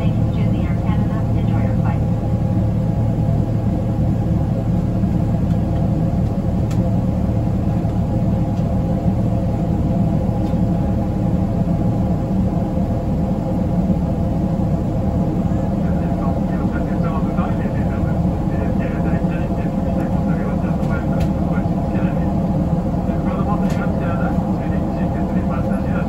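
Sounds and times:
airplane cabin engine drone: 0.0s - 26.0s.

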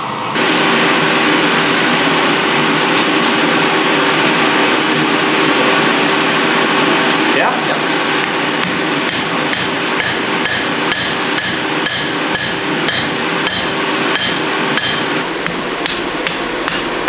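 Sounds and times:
steady rushing noise: 0.3s - 17.0s
hammer ringing on hot steel: 8.6s - 17.0s.

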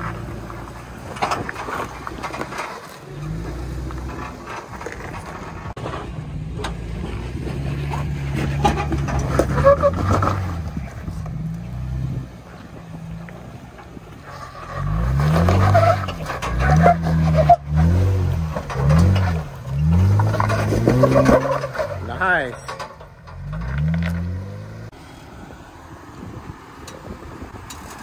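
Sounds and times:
car engine pulling at low speed: 0.0s - 28.0s
engine revving: 14.3s - 25.0s.

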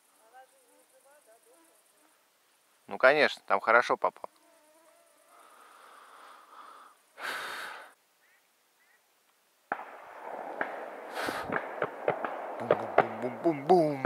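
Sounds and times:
steady hiss: 0.0s - 14.0s
breathy rush of noise: 5.3s - 8.0s, 9.9s - 13.0s
distant shotgun shots: 9.7s - 14.0s.

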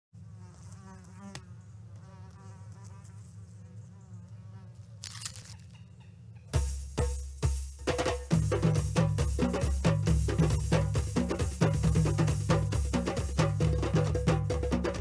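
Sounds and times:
housefly buzzing: 0.2s - 5.6s.

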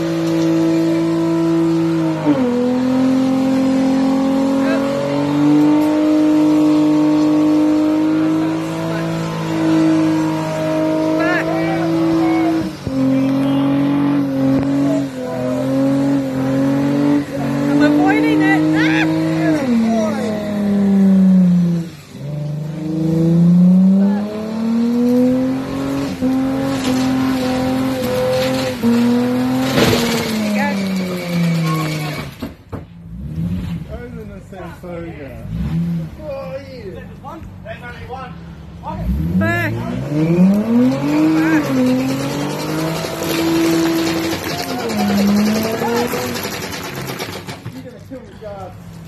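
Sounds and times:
car engine revving high: 0.0s - 32.3s, 38.9s - 47.4s
spinning tyres hissing: 40.5s - 47.7s.

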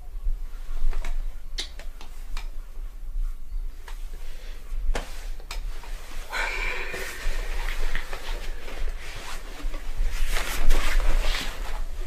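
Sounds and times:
steady low hum: 0.0s - 12.0s
short rustle: 7.0s - 12.0s.

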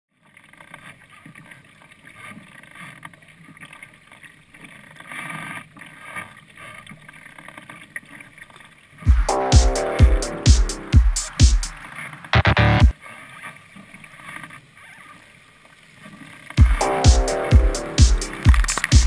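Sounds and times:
water moving along hull: 0.2s - 9.0s, 13.0s - 16.6s
paddle splashing in water: 0.3s - 9.0s.

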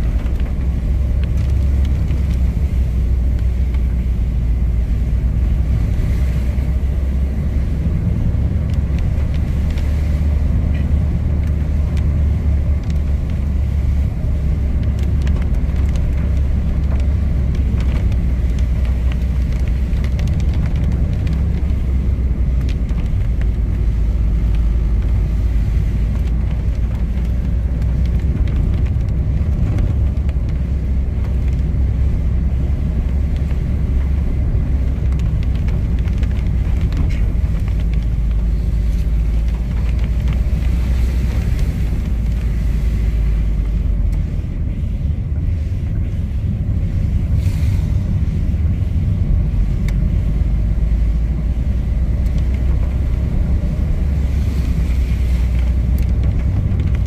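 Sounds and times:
car driving on wet road: 0.0s - 57.0s.

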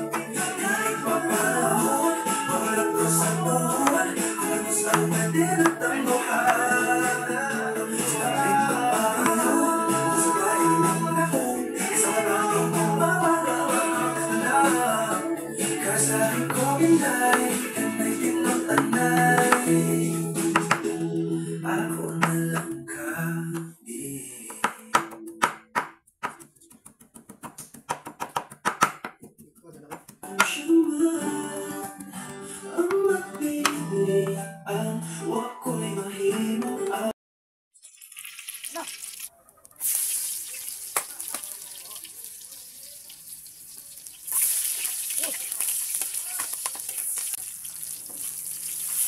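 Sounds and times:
background music with singing: 0.0s - 25.7s, 30.2s - 37.2s
knife chopping on wooden board: 20.5s - 20.8s, 24.5s - 30.6s
garlic sizzling in hot oil: 37.8s - 49.0s.

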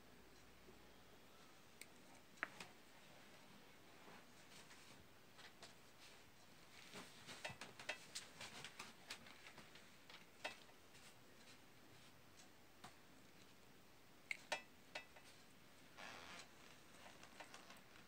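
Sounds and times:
small clicks of handled wires: 6.9s - 11.6s, 16.3s - 18.0s.

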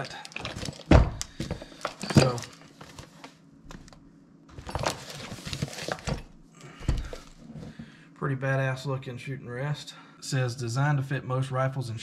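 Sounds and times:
packaging rustling: 0.0s - 6.3s.

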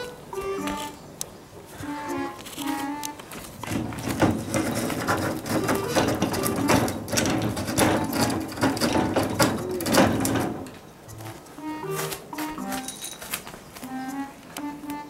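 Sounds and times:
cat claws scratching wood: 3.5s - 11.2s.

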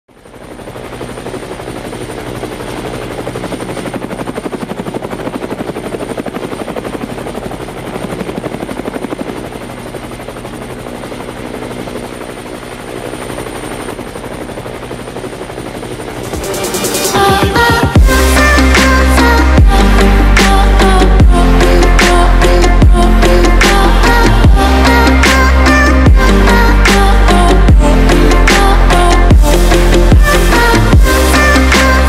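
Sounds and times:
helicopter rotor chopping: 0.1s - 32.0s
engine hum: 13.9s - 32.0s.

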